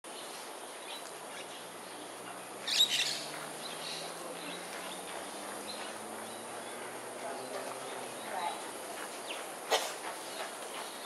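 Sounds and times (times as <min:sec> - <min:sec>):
small birds chirping: 0:00.1 - 0:11.0.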